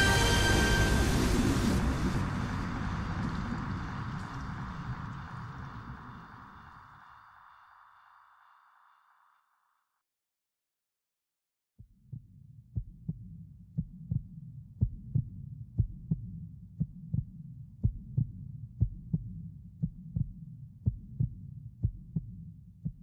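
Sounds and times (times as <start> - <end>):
low steady hum: 0.0 - 7.0.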